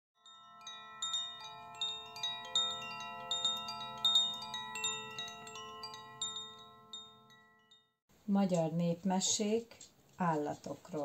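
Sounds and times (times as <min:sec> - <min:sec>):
wind chimes ringing: 0:00.2 - 0:08.0.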